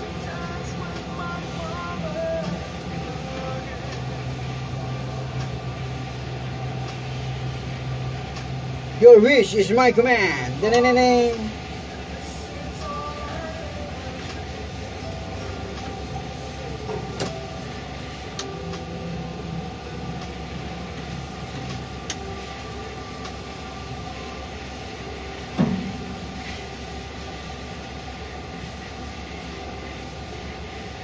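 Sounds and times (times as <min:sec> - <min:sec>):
crane hoist machinery hum: 0:00.0 - 0:31.0
sharp thump: 0:25.6 - 0:26.0.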